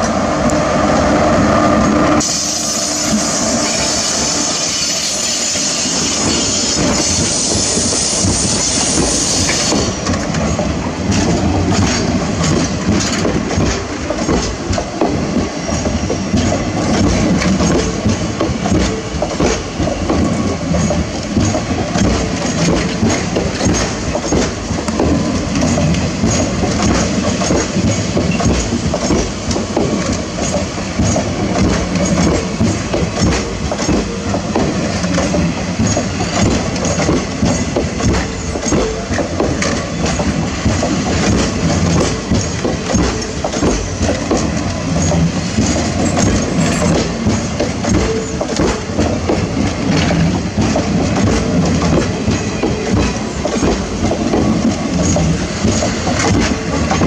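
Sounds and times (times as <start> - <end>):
heavy train rumble: 0.0 - 57.0
locomotive bright hiss: 0.2 - 11.0
train wheels clattering over rail joints: 2.2 - 57.0.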